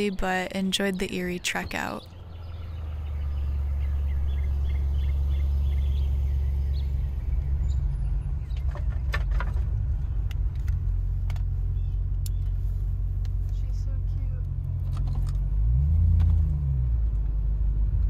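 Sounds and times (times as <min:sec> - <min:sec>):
vehicle engine rumbling: 0:00.0 - 0:18.0
knocks and rattles: 0:08.4 - 0:11.4.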